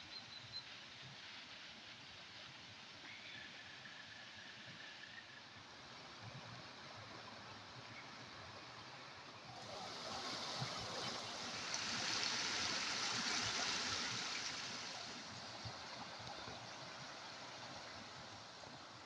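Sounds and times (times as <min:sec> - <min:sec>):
stream rushing over rocks: 0:05.7 - 0:19.0.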